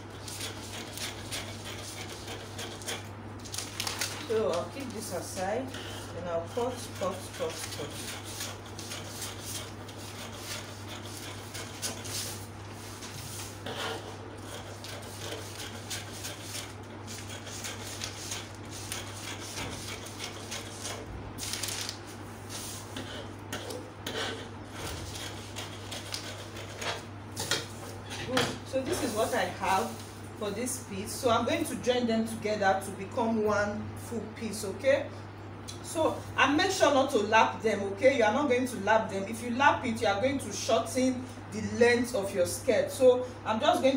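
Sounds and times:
steady low hum: 0.0 - 43.9
paper crackling and rustling: 2.8 - 5.2, 20.7 - 22.7.

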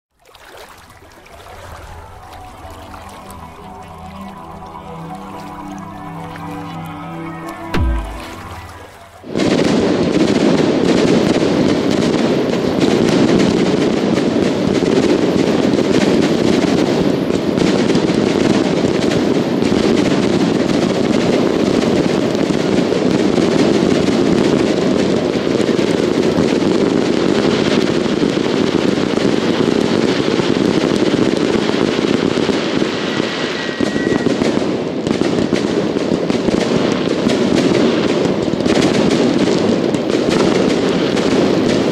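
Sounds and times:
fireworks bursting and crackling: 0.9 - 41.9.

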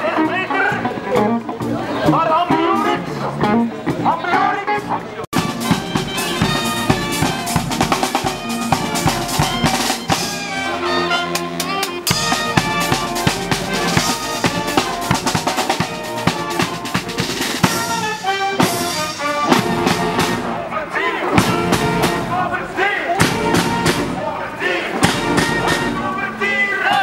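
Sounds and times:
street brass band playing: 0.0 - 27.0
marching bass drum beat: 5.4 - 10.6, 11.3 - 22.6, 23.2 - 24.4, 25.0 - 26.1.

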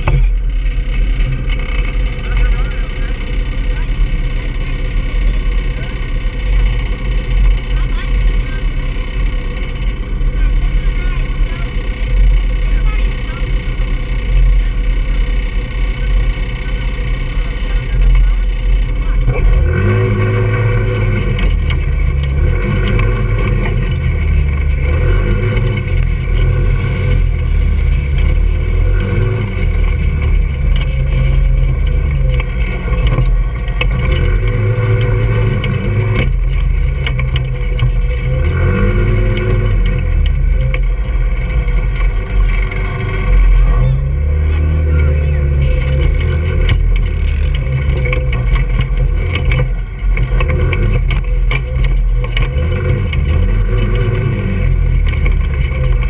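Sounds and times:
go-kart engine revving: 0.0 - 56.0.

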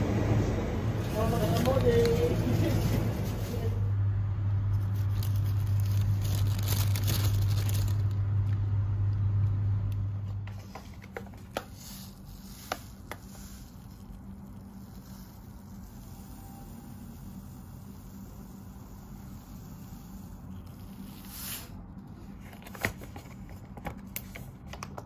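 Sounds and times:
low hum: 0.0 - 10.5
plastic bag rustling: 1.0 - 3.8, 4.7 - 8.2
seeds poured into glass jar: 11.8 - 21.5.

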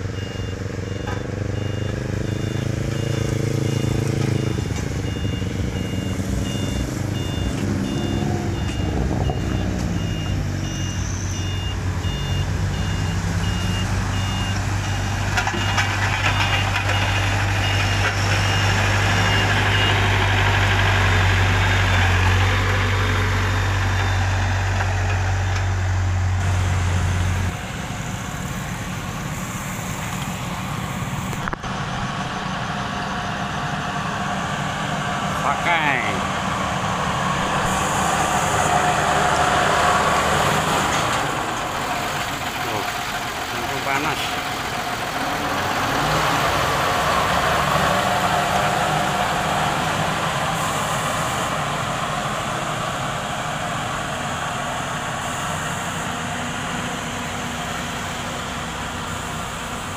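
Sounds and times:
road roller engine running: 0.0 - 59.9
reversing alarm beeping: 0.1 - 20.2.

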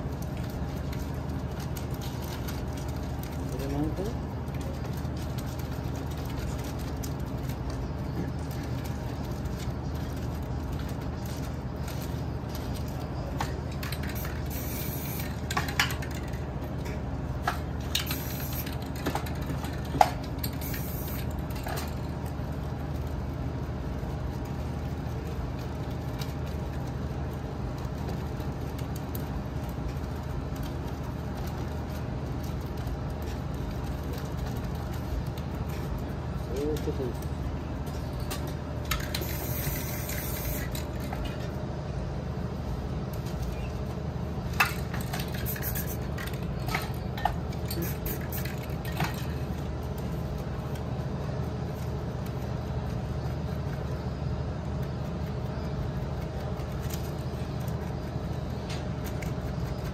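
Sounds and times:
steady low hum: 0.0 - 59.9
spray paint can hissing: 14.0 - 15.5, 17.9 - 18.8, 20.5 - 21.3, 39.0 - 40.8, 45.4 - 46.2, 47.8 - 48.6.

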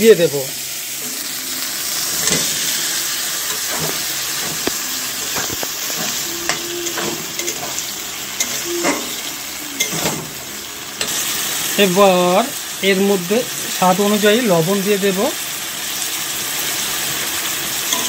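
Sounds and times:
food sizzling in hot oil: 0.0 - 18.0
spatula scraping a metal pan: 2.0 - 10.3.

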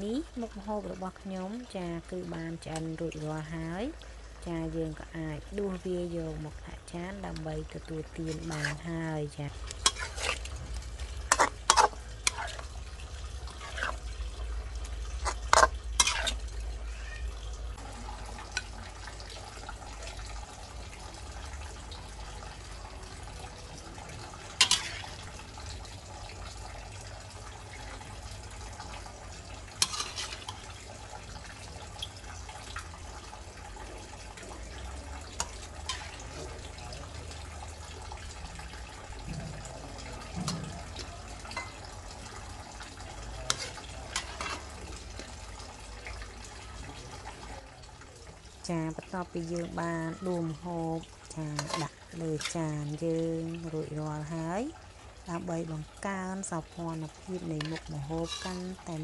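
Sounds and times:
food frying hiss: 0.0 - 59.0
metal spatula scraping a frying pan: 8.2 - 8.9, 9.6 - 16.5, 24.5 - 25.4, 29.6 - 30.9, 35.4 - 36.6, 43.3 - 45.4, 51.5 - 52.6, 57.5 - 58.9.

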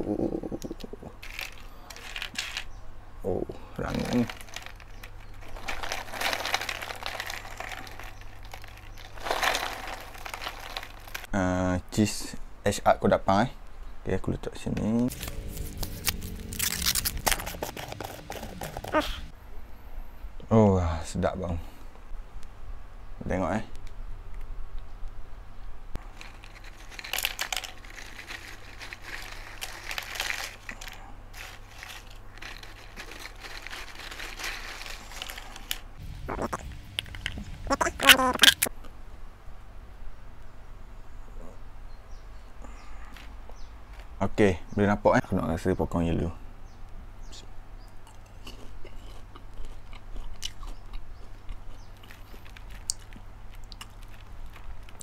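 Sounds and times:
popcorn crunching while chewed: 1.2 - 2.7, 3.8 - 11.3, 15.1 - 19.3, 26.0 - 38.7, 48.0 - 55.0
tortilla chips clattering onto tray: 1.2 - 2.7, 3.8 - 11.3, 26.0 - 35.8.

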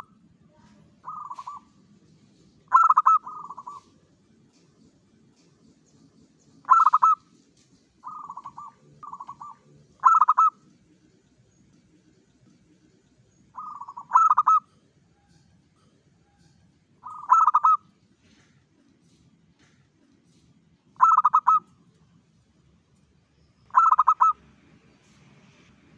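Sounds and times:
dove cooing: 1.0 - 1.7, 2.7 - 3.9, 6.6 - 7.2, 8.0 - 10.6, 13.6 - 14.8, 17.0 - 17.8, 21.0 - 21.7, 23.7 - 24.4.

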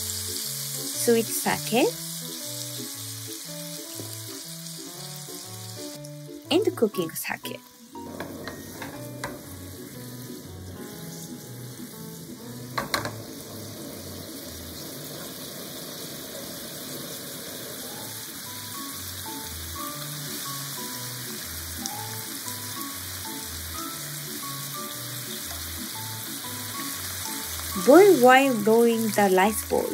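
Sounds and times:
food sizzling in a frying pan: 0.0 - 29.9.

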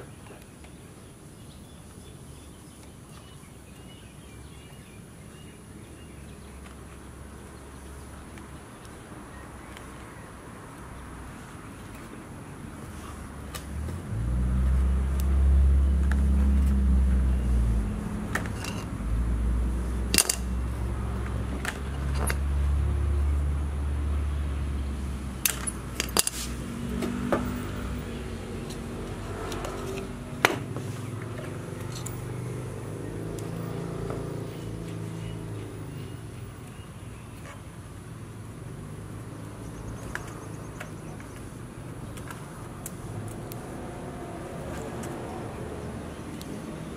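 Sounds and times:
vehicle engine passing: 12.8 - 36.6, 42.4 - 46.9
clicks of tools being handled: 20.1 - 20.5.

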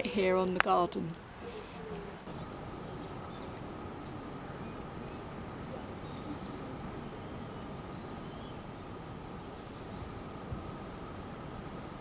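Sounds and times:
outdoor background noise: 0.0 - 12.0
high bird chirps: 2.3 - 8.9.

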